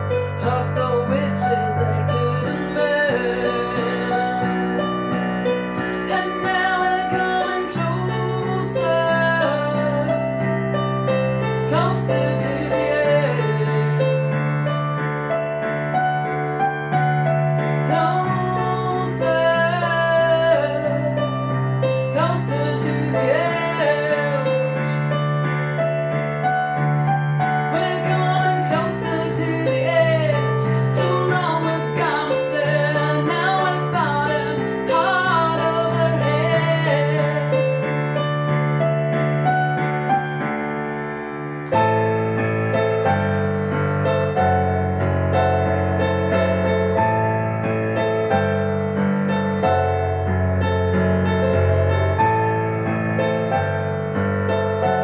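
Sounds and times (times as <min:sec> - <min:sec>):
woman singing: 0:00.0 - 0:04.8, 0:05.8 - 0:10.6, 0:11.6 - 0:14.5, 0:17.6 - 0:25.1, 0:27.6 - 0:37.9
digital piano chords: 0:00.0 - 0:55.0.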